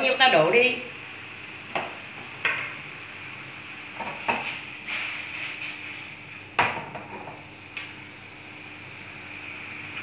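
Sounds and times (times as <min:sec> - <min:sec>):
faint steady hum: 0:00.0 - 0:10.0.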